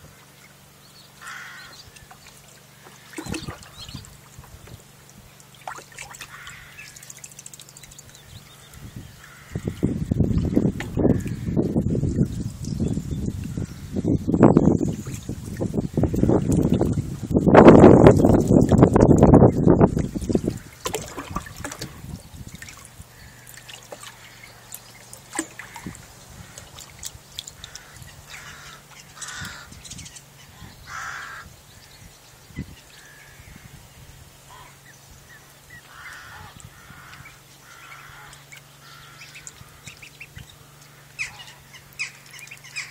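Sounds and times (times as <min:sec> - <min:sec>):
ducklings calling: 0:00.1 - 0:04.8, 0:05.4 - 0:17.1, 0:17.8 - 0:33.8, 0:34.4 - 0:42.9.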